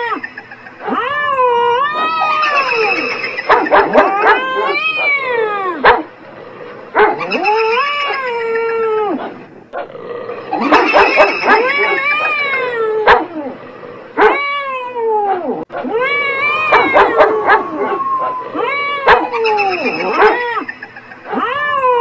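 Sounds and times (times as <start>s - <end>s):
sharp yelps: 0.0s - 6.0s, 10.6s - 13.3s, 15.8s - 21.8s
cat yowling: 0.8s - 6.0s, 7.1s - 9.2s, 10.6s - 13.5s, 14.2s - 22.0s
dog howling: 0.8s - 6.1s, 10.3s - 22.0s.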